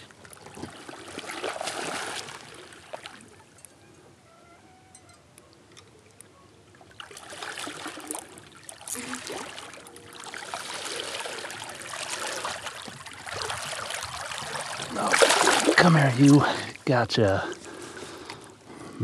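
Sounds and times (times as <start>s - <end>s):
faint river water trickle: 0.0s - 18.9s
fish thrashing and splashing: 0.2s - 3.2s, 6.9s - 16.4s.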